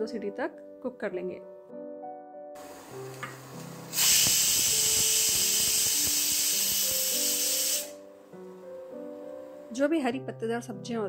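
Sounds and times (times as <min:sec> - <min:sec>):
pressure cooker whistling: 0:03.9 - 0:08.0.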